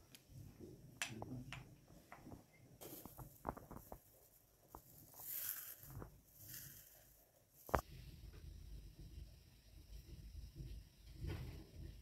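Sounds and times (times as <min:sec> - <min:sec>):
dried herbs rustling: 0:02.8 - 0:08.0.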